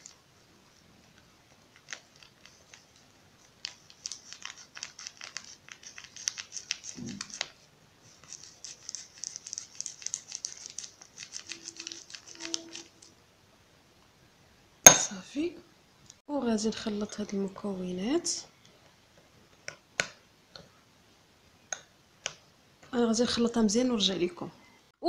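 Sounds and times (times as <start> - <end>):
cereal packet crinkling: 1.6 - 7.6, 8.2 - 13.1.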